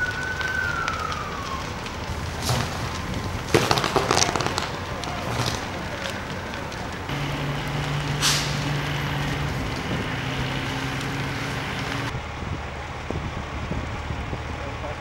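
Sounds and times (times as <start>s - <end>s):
fire engine motor droning: 0.0s - 15.0s
rushing fire and hose streams: 0.0s - 15.0s
short sharp hiss: 8.1s - 8.8s.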